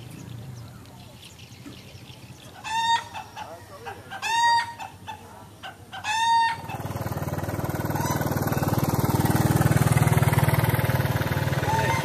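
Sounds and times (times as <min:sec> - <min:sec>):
rooster crowing: 0:06.0 - 0:06.8, 0:11.6 - 0:12.0
small motorcycle engine: 0:06.6 - 0:12.0.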